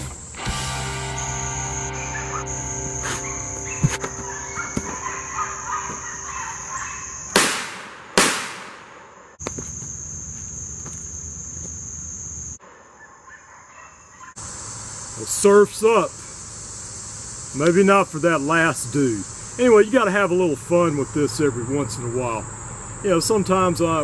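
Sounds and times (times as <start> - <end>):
insects droning: 0.0 - 24.0
revolver shots: 7.3 - 9.2.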